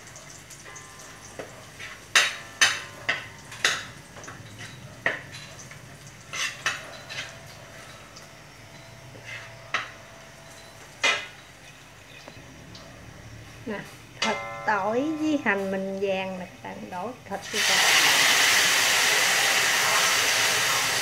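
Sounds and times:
faint sizzle: 0:00.0 - 0:21.0.

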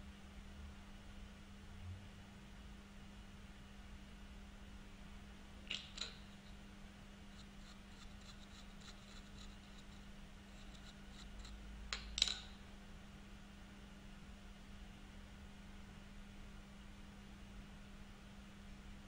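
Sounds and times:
steady low hum: 0:00.0 - 0:19.0
metal part clicking on machine table: 0:05.7 - 0:06.3, 0:11.9 - 0:12.6.

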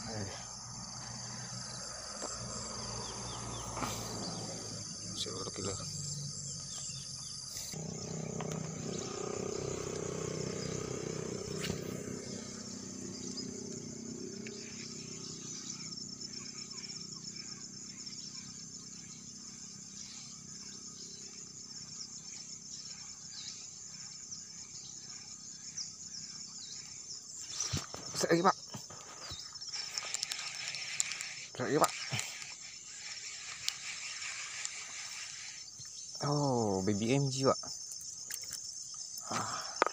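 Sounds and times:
insects chirring: 0:00.0 - 0:39.9.

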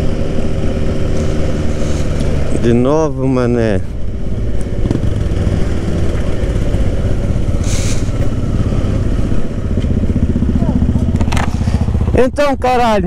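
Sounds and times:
motorcycle engine running: 0:00.0 - 0:13.0
brief hiss: 0:07.6 - 0:08.2.

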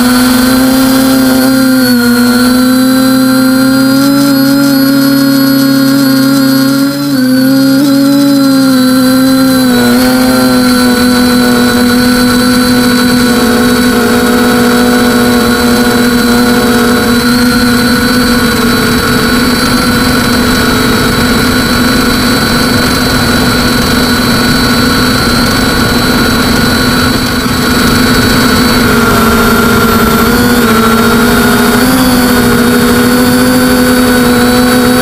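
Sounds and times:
drone motors whining: 0:00.0 - 0:35.0
wind noise: 0:07.5 - 0:35.0.

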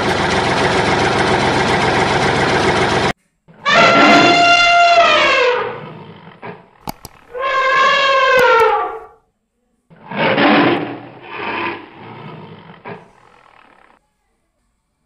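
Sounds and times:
elephant trumpeting: 0:03.5 - 0:09.2, 0:09.9 - 0:14.0
tiger growling: 0:03.6 - 0:09.2, 0:09.9 - 0:14.0
tiger roaring: 0:03.6 - 0:09.2, 0:09.9 - 0:14.0.

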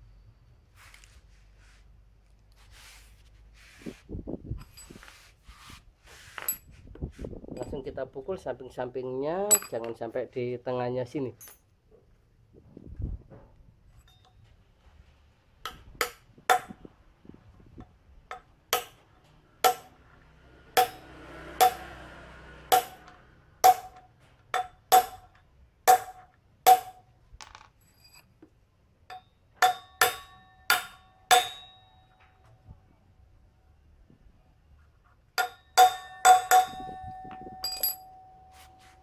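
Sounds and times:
hammer striking metal drift: 0:19.6 - 0:20.0, 0:20.6 - 0:24.0, 0:29.6 - 0:32.1, 0:35.4 - 0:37.0.

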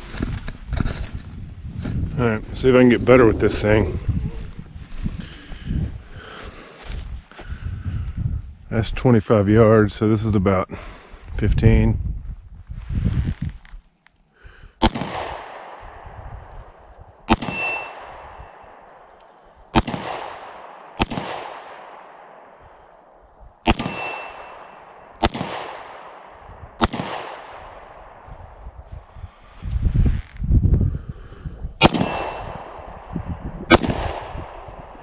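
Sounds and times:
pistol shots echoing: 0:14.8 - 0:16.1, 0:17.3 - 0:28.2, 0:31.8 - 0:35.0
high metallic ring: 0:17.3 - 0:18.9, 0:23.8 - 0:25.1, 0:31.9 - 0:33.0.

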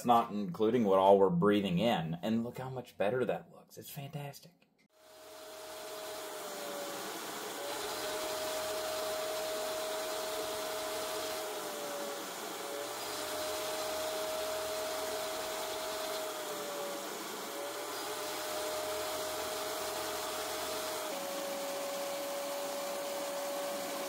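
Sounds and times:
shop vacuum running: 0:05.0 - 0:24.0.

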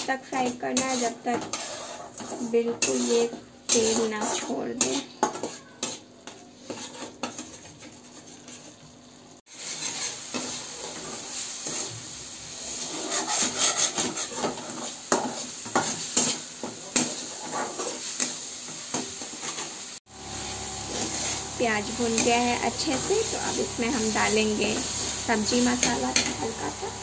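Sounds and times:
metal spatula scraping a pan: 0:00.0 - 0:08.9, 0:09.5 - 0:19.8, 0:20.8 - 0:27.0
frying sizzle: 0:00.0 - 0:27.0.

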